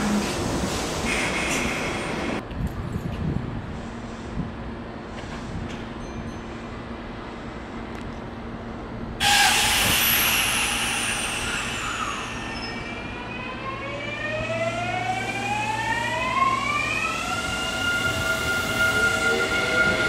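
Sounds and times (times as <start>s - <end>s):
train rushing: 9.2s - 20.0s.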